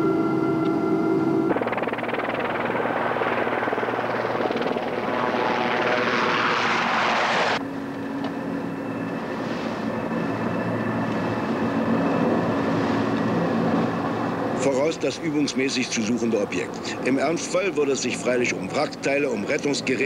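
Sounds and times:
low engine hum: 0.0s - 15.2s
steady tones: 0.0s - 16.0s
helicopter rotor chopping: 1.1s - 20.0s.

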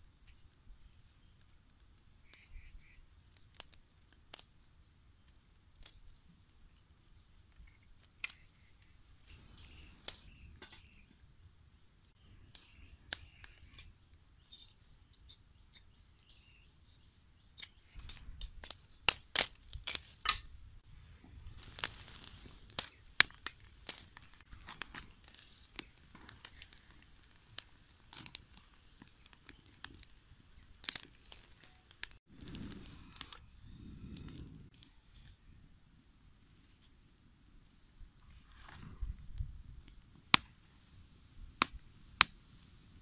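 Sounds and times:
twig fire crackling: 0.0s - 43.0s
sharp snaps and pops: 0.1s - 6.8s, 7.5s - 11.3s, 12.0s - 16.4s, 17.5s - 20.6s, 21.4s - 33.4s, 38.2s - 40.6s, 41.5s - 42.7s.

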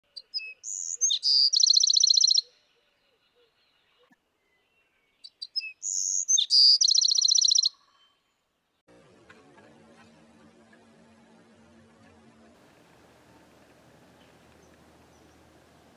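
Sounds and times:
wren song with trill: 0.1s - 8.4s.

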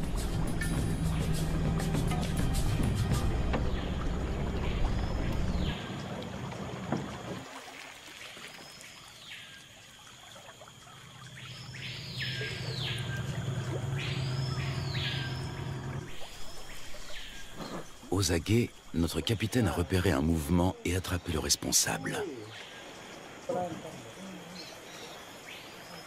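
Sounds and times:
outboard motor droning: 0.0s - 7.9s, 9.9s - 26.0s
bird calling: 11.4s - 23.2s.

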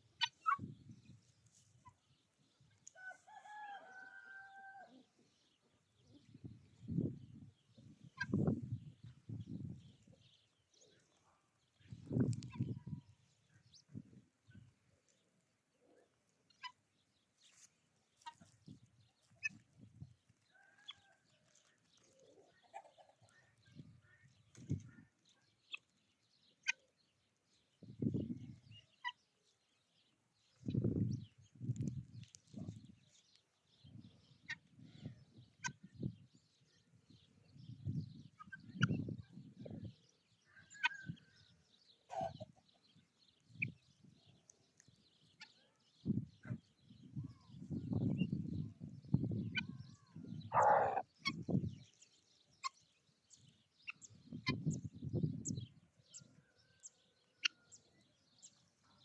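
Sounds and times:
rooster and guinea fowl calls: 0.1s - 0.8s, 1.5s - 6.4s, 7.3s - 8.6s, 15.9s - 25.9s, 34.4s - 36.2s, 38.2s - 43.8s, 46.4s - 51.6s, 53.8s - 59.0s
faint poultry calls: 2.8s - 5.3s, 40.4s - 42.8s, 49.5s - 51.4s, 56.1s - 59.0s.

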